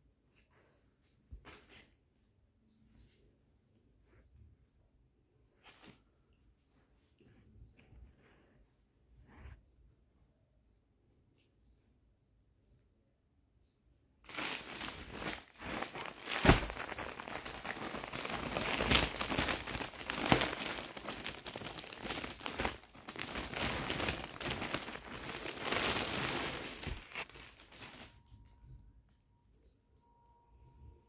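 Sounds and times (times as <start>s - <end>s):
plastic packaging crinkling: 14.3s - 28.2s.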